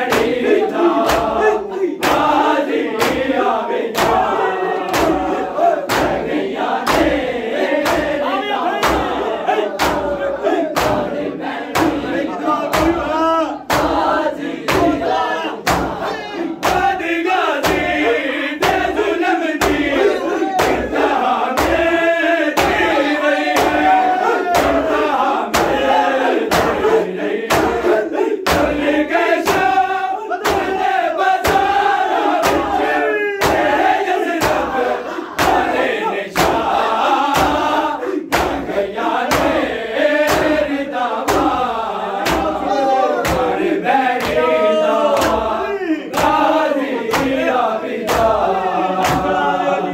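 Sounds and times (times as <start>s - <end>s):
hands slapping chests: 0.0s - 8.2s, 8.8s - 49.4s
men chanting a lament: 0.0s - 49.9s.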